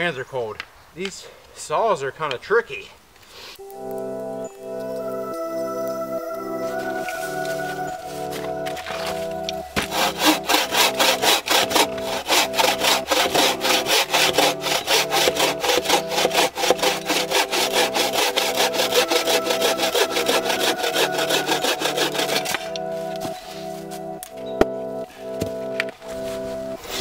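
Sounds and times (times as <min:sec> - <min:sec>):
saw cutting through log: 0:07.0 - 0:23.4.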